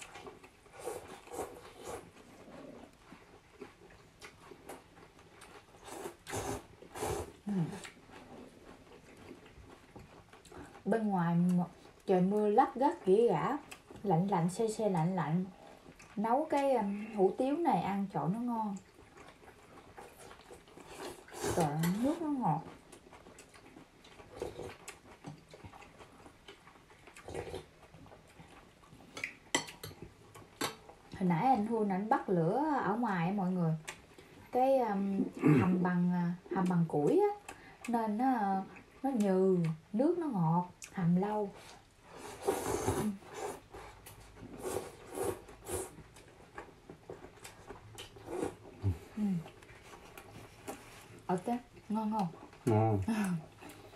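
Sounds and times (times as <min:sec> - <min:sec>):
chewing: 0:00.0 - 0:17.2, 0:18.6 - 0:31.3, 0:33.7 - 0:34.5, 0:38.6 - 0:39.9, 0:40.6 - 0:53.9
people slurping noodles: 0:05.8 - 0:07.7, 0:20.9 - 0:21.8, 0:42.2 - 0:46.0, 0:48.2 - 0:49.2.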